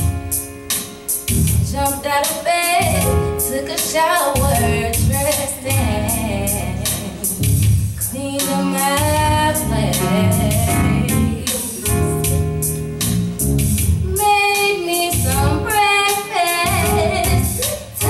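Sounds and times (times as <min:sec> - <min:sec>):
steady percussion beat: 0:00.0 - 0:06.2, 0:06.8 - 0:18.0
bass: 0:00.0 - 0:18.0
woman singing into a microphone: 0:01.7 - 0:12.6, 0:14.0 - 0:18.0.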